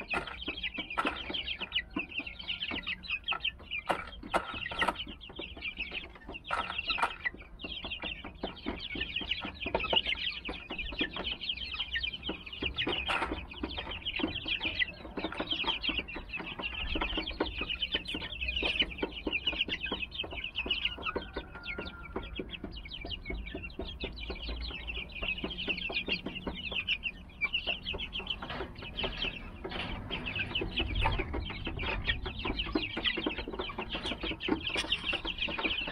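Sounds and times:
chicks cheeping: 0.0s - 35.9s.

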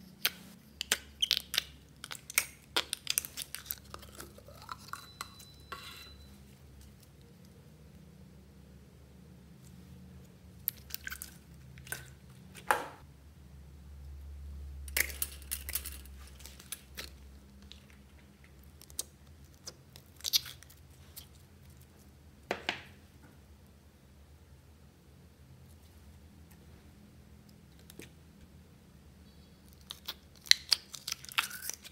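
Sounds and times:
slime squelching: 0.0s - 5.4s, 10.3s - 12.7s.

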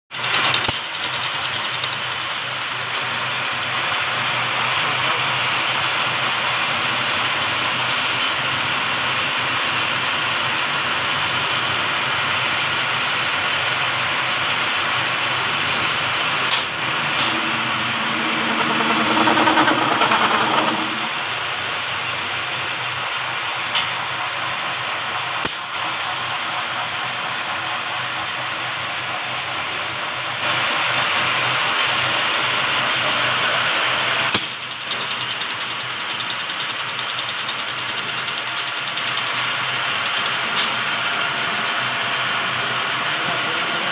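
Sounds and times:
lathe running: 13.8s - 21.3s
cutting tool whine: 14.4s - 21.4s.

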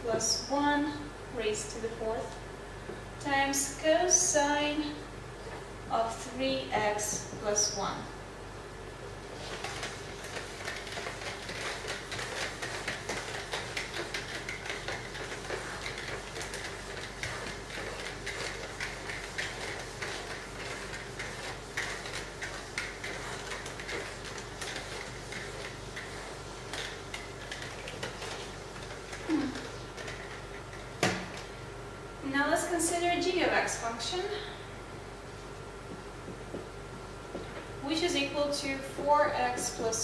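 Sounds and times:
eraser scrubbing whiteboard: 9.3s - 30.4s.

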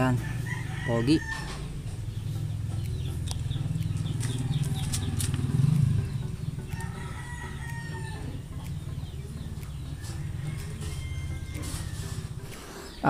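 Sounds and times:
chickens clucking: 0.0s - 13.0s
rooster crowing: 0.1s - 1.7s, 6.8s - 8.4s, 10.0s - 12.4s.

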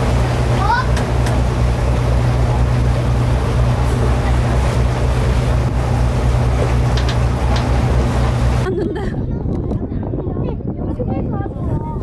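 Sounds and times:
boat engine droning: 0.0s - 9.3s
wind and water rushing: 0.0s - 12.0s.

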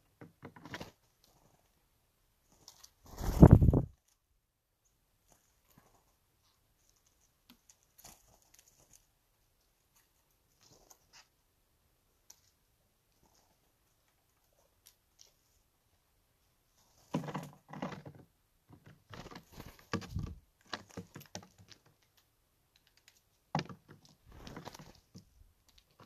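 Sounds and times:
birds pecking at peanut shells: 5.2s - 11.3s, 12.2s - 15.6s, 18.8s - 26.0s.

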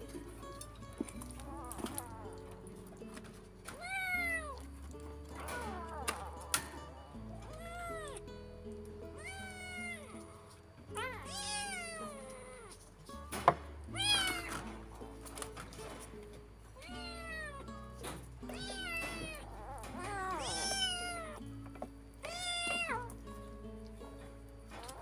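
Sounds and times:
soft background music: 0.0s - 25.0s
kitten mewing: 1.2s - 3.0s, 3.7s - 8.2s, 9.2s - 12.8s, 13.9s - 14.7s, 16.8s - 17.7s, 18.5s - 21.4s, 22.2s - 23.2s.

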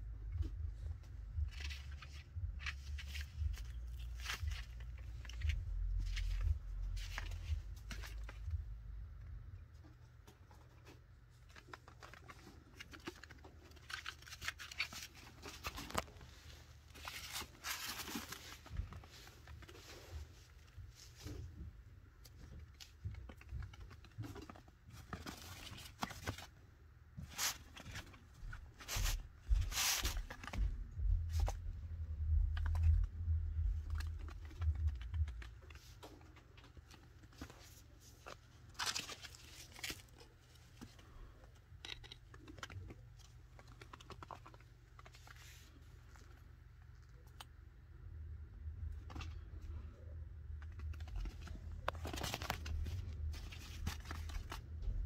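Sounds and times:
low rumble: 0.0s - 9.7s, 30.1s - 35.8s
small clicks taps and scratches: 0.2s - 16.4s, 17.0s - 26.6s, 27.2s - 47.7s, 48.8s - 55.0s.

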